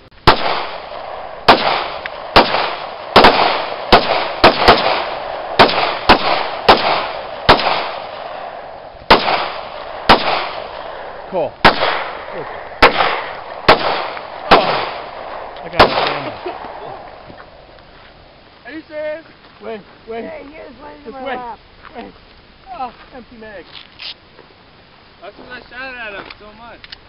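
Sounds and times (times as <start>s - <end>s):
handgun shots echoing: 0.3s - 8.5s, 9.1s - 12.2s, 12.8s - 16.8s.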